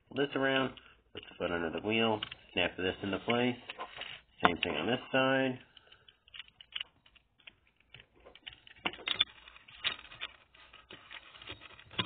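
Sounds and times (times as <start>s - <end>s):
plastic toy parts clicking: 5.8s - 10.5s.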